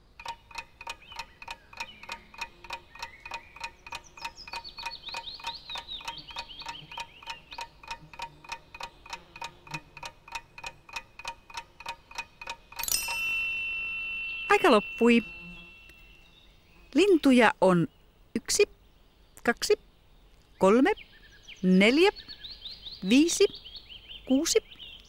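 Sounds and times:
clock ticking: 0.0 - 15.2
birds chirping: 0.0 - 25.0.

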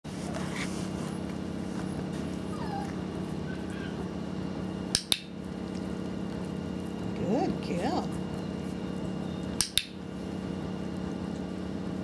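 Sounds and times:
puppy whimpering: 2.4 - 4.1
dog-training clicker clicks: 4.9 - 5.3, 9.6 - 9.9.

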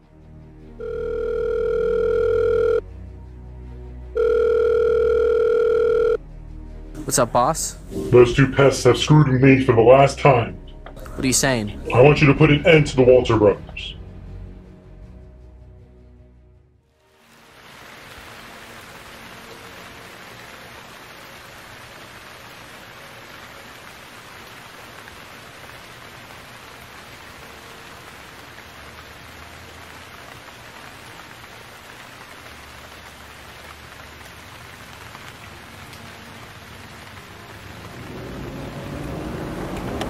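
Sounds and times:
rain on wet pavement: 16.9 - 40.0.

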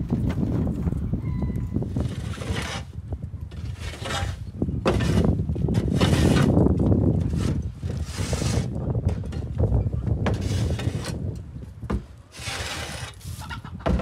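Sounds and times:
shovel scraping wooden floor: 2.0 - 9.5, 10.2 - 11.3, 12.3 - 14.0.

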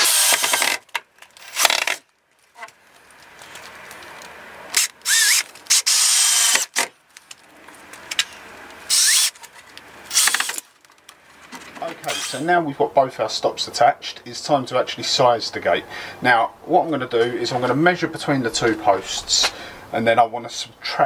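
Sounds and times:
drill driving screw into wood: 0.0 - 2.0, 4.8 - 6.9, 8.9 - 9.4, 10.1 - 10.7, 12.0 - 12.4
drill short bursts and whine: 4.8 - 6.7, 8.9 - 9.3, 12.0 - 12.4.

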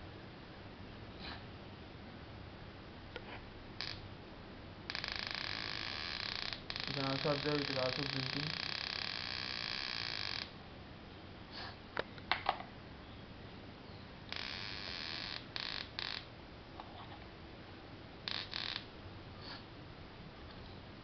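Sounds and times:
electronic buzz: 3.8 - 4.1, 4.9 - 10.6, 14.3 - 16.4, 18.2 - 18.9
sharp electrical clicks: 3.8 - 4.1, 4.9 - 10.6, 14.3 - 16.3, 18.2 - 19.0.

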